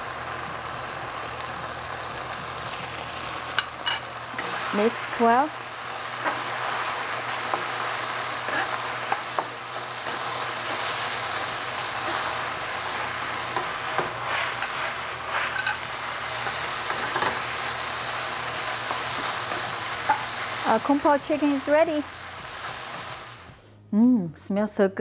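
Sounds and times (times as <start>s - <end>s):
food sizzling in a wok: 0.0s - 23.6s
spatula scraping a pan: 6.2s - 17.5s.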